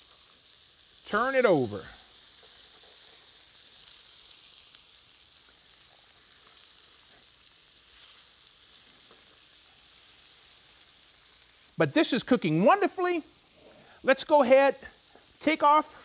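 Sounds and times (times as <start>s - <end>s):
fish sizzling on griddle: 0.0s - 16.0s.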